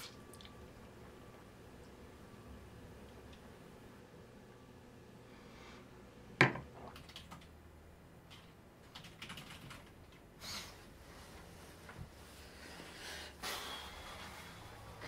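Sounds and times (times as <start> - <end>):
mug knocking on hard surface: 6.4 - 6.9.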